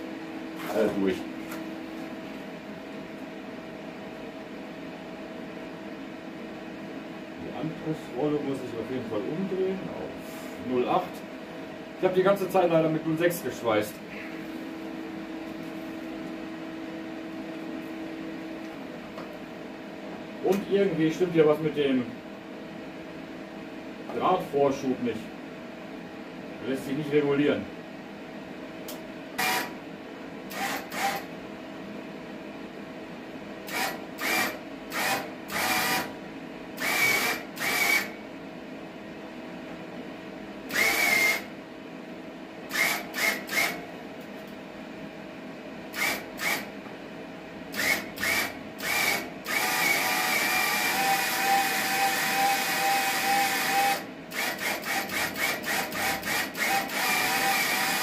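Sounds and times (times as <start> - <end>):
steady hum: 0.0 - 58.0
wire feed motor whirring: 29.4 - 29.7, 30.5 - 31.3, 33.7 - 36.1, 36.8 - 38.2, 40.7 - 41.5, 42.7 - 43.8, 45.9 - 46.7, 47.7 - 58.0.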